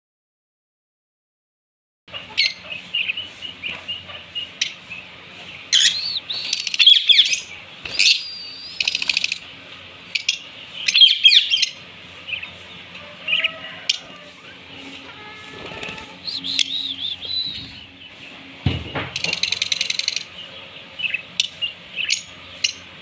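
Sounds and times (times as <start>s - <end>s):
lovebirds chirping and twittering: 2.1s - 23.0s.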